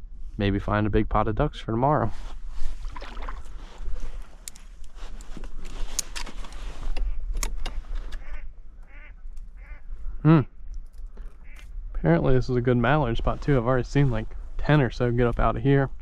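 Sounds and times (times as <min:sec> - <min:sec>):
reeds scraping along a kayak: 0:02.1 - 0:09.0
ducks quacking: 0:08.2 - 0:09.9.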